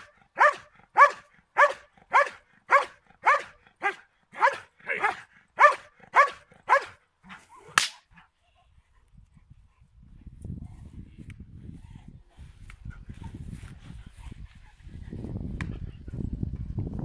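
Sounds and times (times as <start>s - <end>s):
dog barking: 0.0s - 7.0s
sharp crack: 7.7s - 8.1s.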